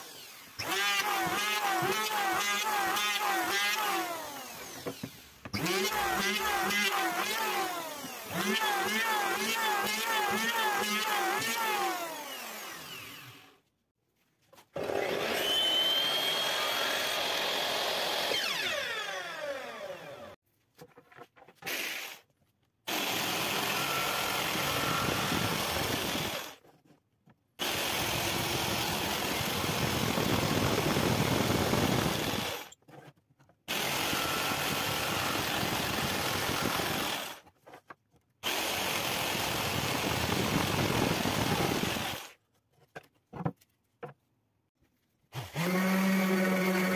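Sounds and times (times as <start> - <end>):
jigsaw cutting wood: 0.0 - 13.6, 14.8 - 20.4, 22.9 - 26.6, 27.6 - 32.8, 33.7 - 37.5, 38.4 - 42.4, 45.3 - 46.9.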